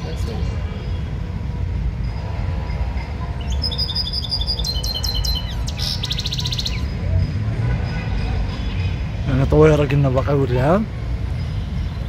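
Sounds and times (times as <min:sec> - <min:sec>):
goldfinch chirping and trilling: 0:03.4 - 0:06.9.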